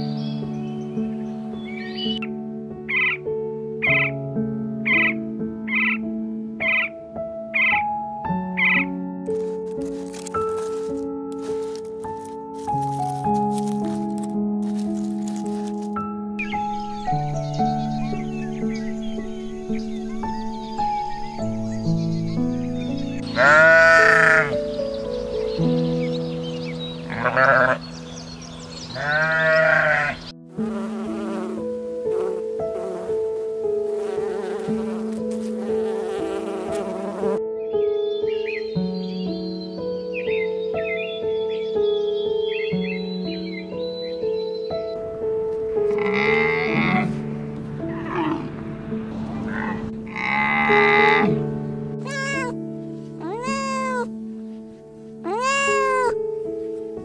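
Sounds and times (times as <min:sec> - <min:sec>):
soft piano music: 0:00.0 - 0:57.0
sheep bleating: 0:23.3 - 0:24.6, 0:27.1 - 0:27.8, 0:28.9 - 0:31.6, 0:45.9 - 0:47.2, 0:49.4 - 0:51.4, 0:52.0 - 0:52.6, 0:53.2 - 0:54.1, 0:55.2 - 0:56.2
cat meowing: 0:23.4 - 0:24.5, 0:27.1 - 0:27.8, 0:29.0 - 0:30.2, 0:52.0 - 0:52.6, 0:53.2 - 0:54.1, 0:55.2 - 0:56.2
camel calling harshly: 0:23.4 - 0:24.6, 0:27.1 - 0:27.8, 0:28.9 - 0:31.5, 0:45.9 - 0:47.2, 0:49.4 - 0:51.4, 0:52.0 - 0:52.6, 0:53.2 - 0:54.1, 0:55.2 - 0:56.2
honeybee buzzing: 0:29.1 - 0:37.4.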